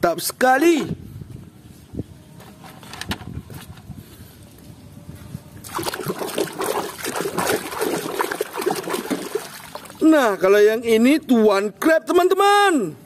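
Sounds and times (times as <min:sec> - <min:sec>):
hand splashing in muddy water: 0:05.6 - 0:10.0.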